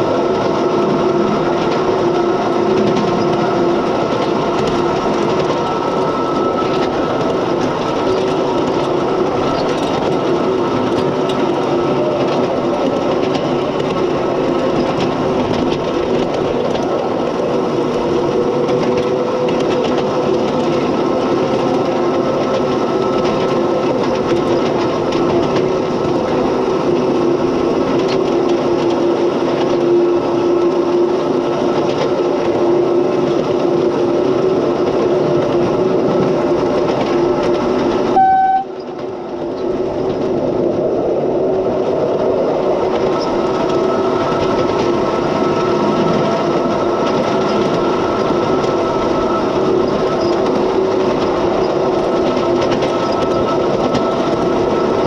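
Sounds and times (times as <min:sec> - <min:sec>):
miniature locomotive humming: 0:00.0 - 0:55.0
wheels on rails: 0:00.0 - 0:55.0
locomotive horn toot: 0:38.1 - 0:38.9.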